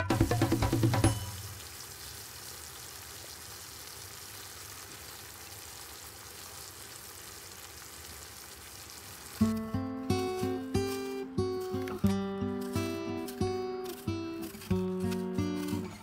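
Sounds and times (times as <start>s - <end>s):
apple slices sizzling in a pan: 0.6s - 12.0s.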